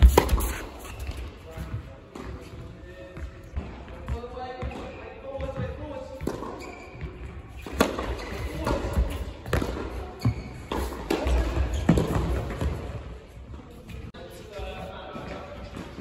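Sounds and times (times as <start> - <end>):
tennis ball hits and bounces: 0.0 - 0.8.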